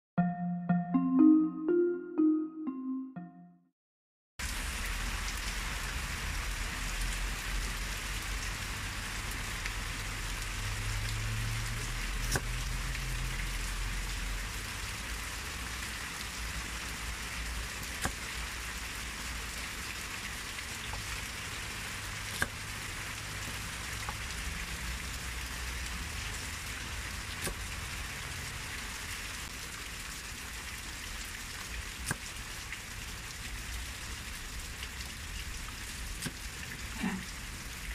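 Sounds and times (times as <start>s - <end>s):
rain hissing: 4.4s - 37.9s
cleaver chopping on wooden board: 18.0s - 18.2s, 22.4s - 22.6s, 27.4s - 27.6s.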